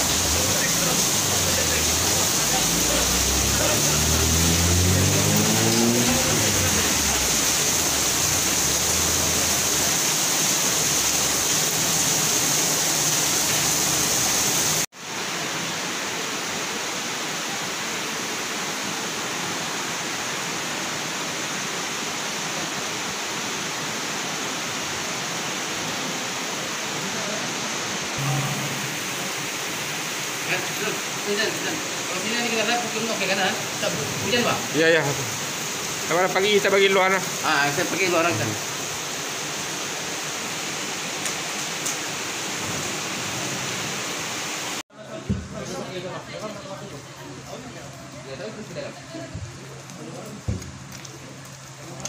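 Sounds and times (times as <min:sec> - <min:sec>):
low droning tone: 0:28.2 - 0:29.7.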